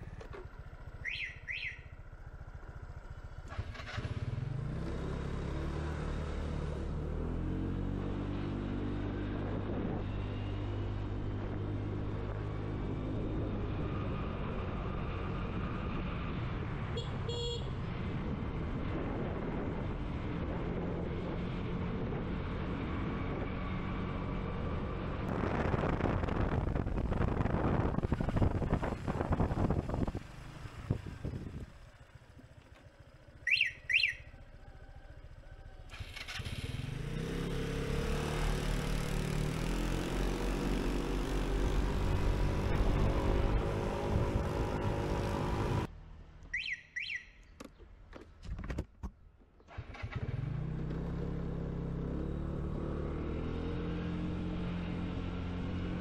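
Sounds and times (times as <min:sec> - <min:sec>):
scooter engine droning: 0:00.0 - 0:47.5, 0:49.7 - 0:56.0
double chirp: 0:46.5 - 0:47.6.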